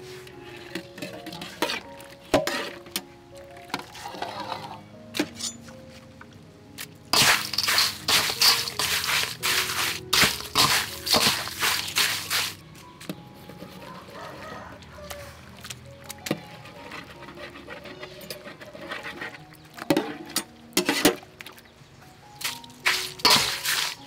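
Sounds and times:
soft background music: 0.0 - 24.0
crushed ice crunching: 6.8 - 12.7, 22.4 - 24.0.

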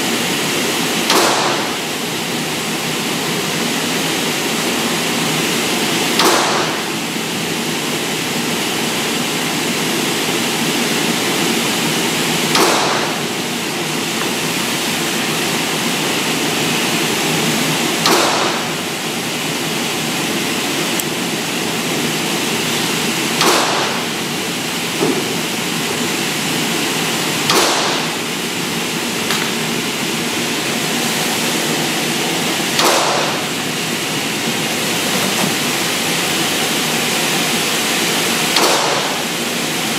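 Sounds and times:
short echoing gunshot bangs: 1.1 - 1.7, 6.2 - 6.8, 12.5 - 13.2, 18.0 - 18.8, 23.4 - 24.1, 27.5 - 28.2, 32.8 - 33.5, 38.6 - 39.2
ventilation rushing: 6.5 - 39.9.

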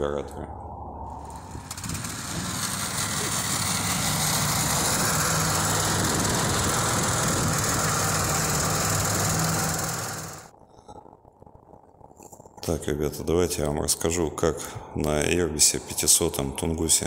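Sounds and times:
small engine running: 1.2 - 10.5
steady hiss: 1.2 - 10.6.

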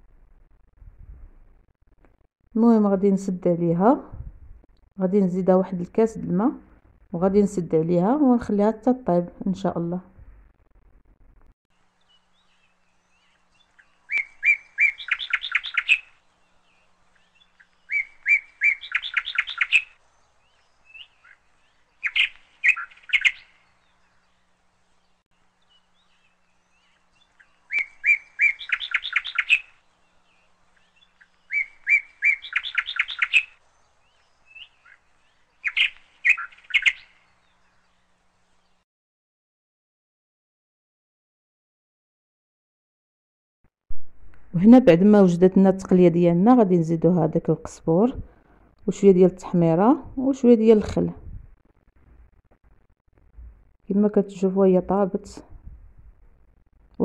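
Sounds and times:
songbird chirping and trilling: 11.9 - 38.8.

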